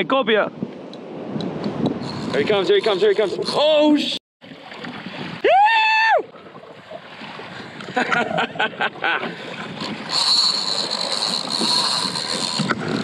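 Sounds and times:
wind: 0:00.0 - 0:13.0
sea waves: 0:00.7 - 0:13.0
fishing reel drag whine: 0:02.0 - 0:03.8, 0:09.4 - 0:13.0.

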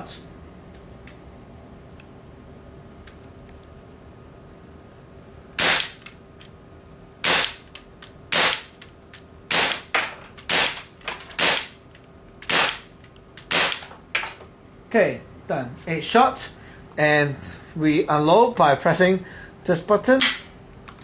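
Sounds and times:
air pistol shots: 0:05.6 - 0:06.1, 0:07.2 - 0:07.7, 0:08.3 - 0:08.8, 0:09.5 - 0:11.8, 0:12.4 - 0:13.9.

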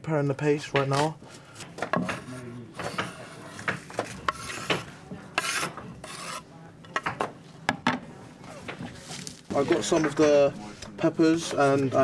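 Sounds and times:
sharp scrapes: 0:02.2 - 0:06.5.

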